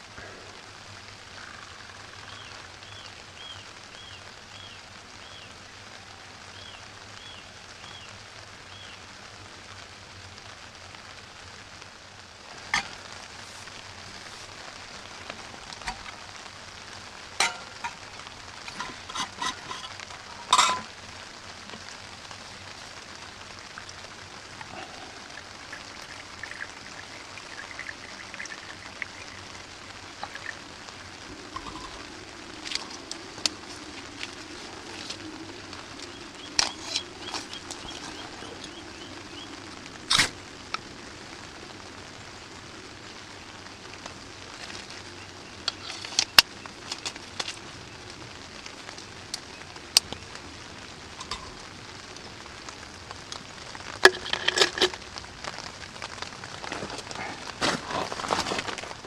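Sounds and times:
rain hissing on a tarp: 0:00.0 - 0:59.0
metal clinking on steel grill: 0:17.4 - 0:18.0, 0:18.6 - 0:20.9
bird chirping: 0:36.0 - 0:39.6.

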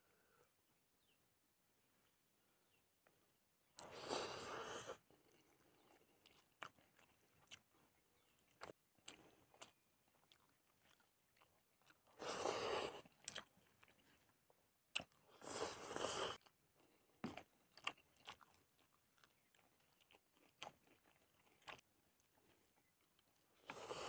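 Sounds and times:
wet chewing and mouth clicks: 0:03.0 - 0:24.0.

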